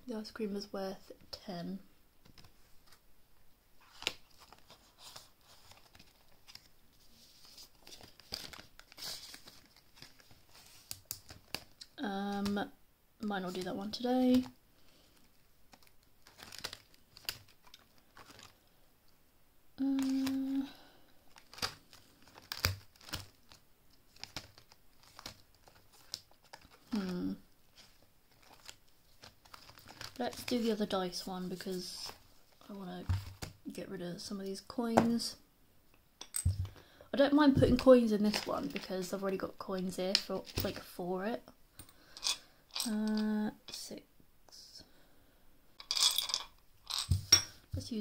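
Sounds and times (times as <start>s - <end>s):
paper banknotes rustling: 3.8s - 11.8s, 21.3s - 32.2s
person humming: 19.8s - 20.7s.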